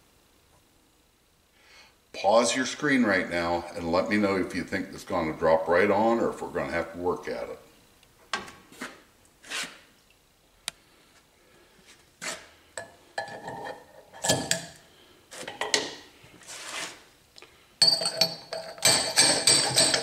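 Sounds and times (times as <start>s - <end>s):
knocks and rattles: 17.8s - 20.0s
metal clinks: 17.8s - 20.0s.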